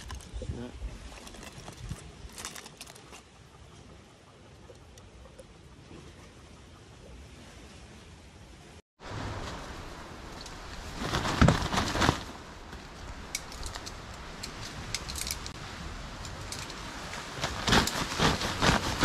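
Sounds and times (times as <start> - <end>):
nylon tent fabric rustling: 10.7 - 13.0, 16.7 - 19.0.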